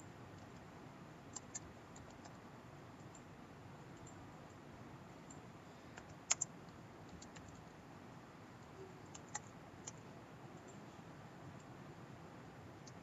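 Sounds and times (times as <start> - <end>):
keyboard keystrokes: 1.3 - 2.4, 6.0 - 6.5, 7.1 - 7.6, 9.0 - 10.0
mouse clicks: 1.3 - 2.4, 4.0 - 4.6, 6.0 - 7.6, 8.6 - 10.0, 12.8 - 13.0.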